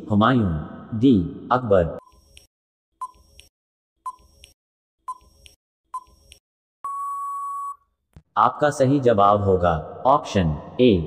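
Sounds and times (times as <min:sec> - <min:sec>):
long steady beep: 0:06.8 - 0:07.8.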